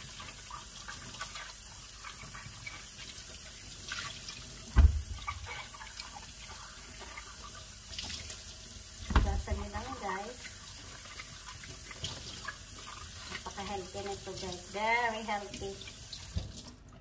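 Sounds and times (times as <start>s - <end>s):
water splashing off peppers: 0.0s - 16.9s
tap running into sink: 4.7s - 5.7s, 9.0s - 9.9s, 16.2s - 16.7s
low thump: 4.8s - 5.5s, 9.0s - 9.7s.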